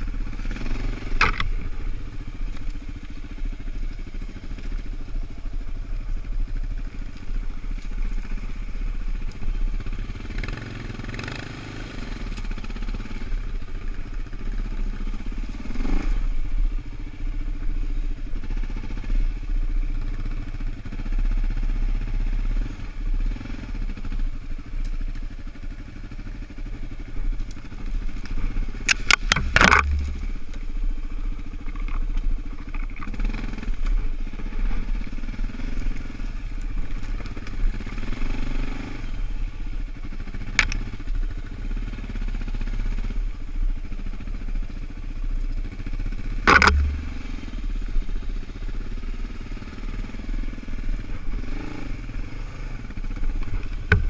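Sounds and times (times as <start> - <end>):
quad engine running: 0.0 - 54.0
sharp knocks clatter: 28.9 - 30.2, 46.4 - 47.1.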